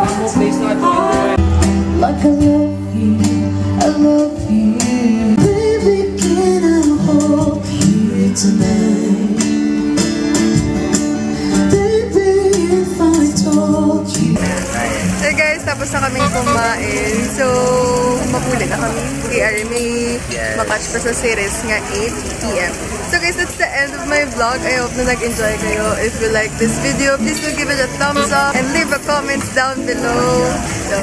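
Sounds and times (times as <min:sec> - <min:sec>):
man and woman singing: 0:00.0 - 0:01.4, 0:02.0 - 0:09.4, 0:11.7 - 0:15.4, 0:26.6 - 0:31.0
acoustic guitar strumming: 0:14.3 - 0:20.7, 0:23.8 - 0:31.0.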